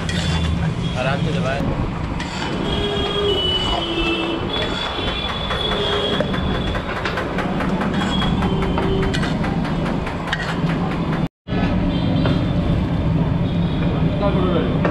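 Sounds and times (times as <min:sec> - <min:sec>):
metal spatulas scraping griddle: 0:00.0 - 0:01.0, 0:02.2 - 0:06.2, 0:07.9 - 0:09.5, 0:10.3 - 0:10.7
high metal squeals: 0:02.2 - 0:07.0, 0:07.9 - 0:09.4.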